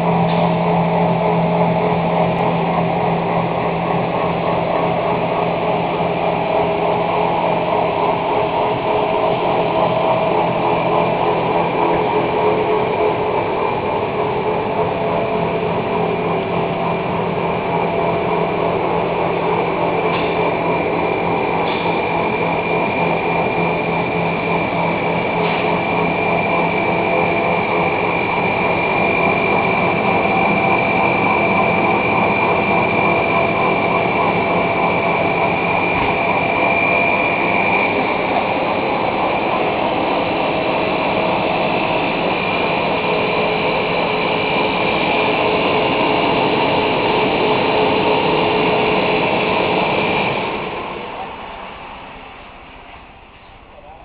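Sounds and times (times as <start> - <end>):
high-pitched whine: 0.0 - 54.0
mechanical motor hum: 0.0 - 54.0.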